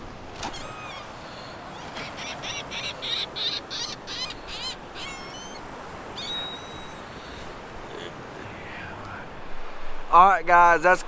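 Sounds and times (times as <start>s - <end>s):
surf and wind hiss: 0.0s - 11.0s
birds calling: 0.4s - 9.4s.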